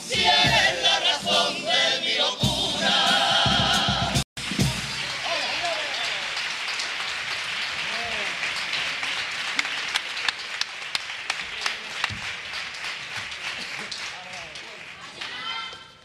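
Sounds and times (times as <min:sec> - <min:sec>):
audience applauding: 0:04.6 - 0:15.6
shouts and voices in crowd: 0:14.9 - 0:16.0.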